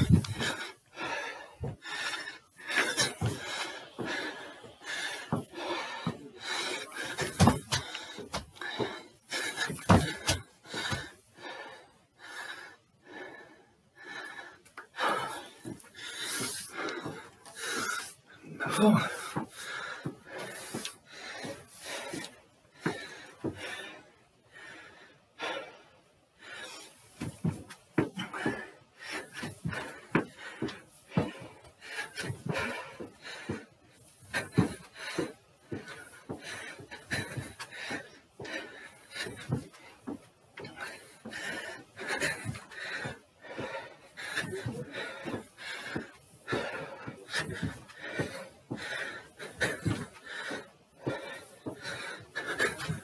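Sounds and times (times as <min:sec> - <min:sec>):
footfall thumps on stairs: 0:00.0 - 0:01.9, 0:02.7 - 0:04.3, 0:05.1 - 0:11.1, 0:34.3 - 0:50.4
shuffling footfalls: 0:00.0 - 0:02.0, 0:02.6 - 0:11.1
feet thudding on wooden step: 0:00.0 - 0:02.1, 0:02.7 - 0:11.2, 0:27.2 - 0:28.7, 0:29.3 - 0:33.7, 0:34.3 - 0:53.0
man breathing hard: 0:00.0 - 0:53.0.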